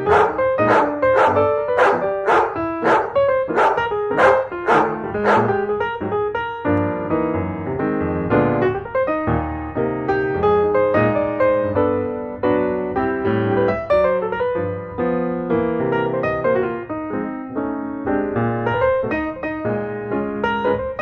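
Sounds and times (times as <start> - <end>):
dog barking: 0.0 - 5.6
piano music: 0.0 - 21.0.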